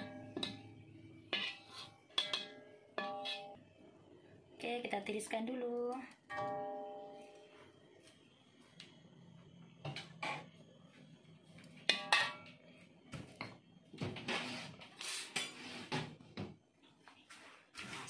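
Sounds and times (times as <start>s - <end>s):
spatula clanking on metal wok: 0.0s - 3.6s, 11.9s - 12.5s
spatula scraping wok: 0.0s - 3.6s, 10.1s - 10.5s, 14.2s - 16.1s.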